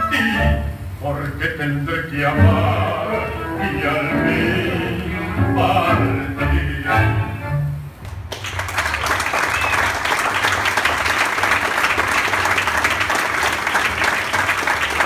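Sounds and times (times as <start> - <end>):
audience applauding: 8.1 - 15.0.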